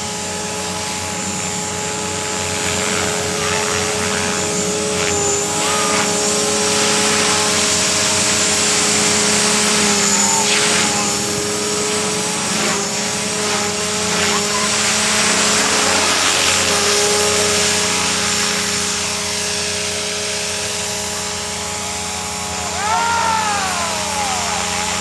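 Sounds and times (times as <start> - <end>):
rc helicopter rotor whine: 0.0 - 25.0
call rising then falling: 22.5 - 25.0.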